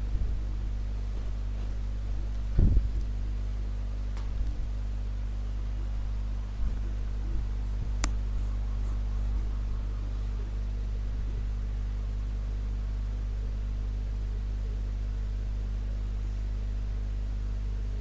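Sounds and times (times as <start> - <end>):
electrical hum: 0.0 - 18.0
sharp click: 8.0 - 8.2.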